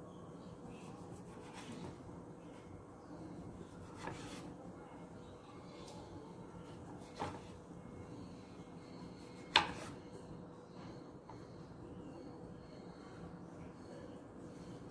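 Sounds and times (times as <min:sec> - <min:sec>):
knife slicing vegetable: 0:03.8 - 0:04.5.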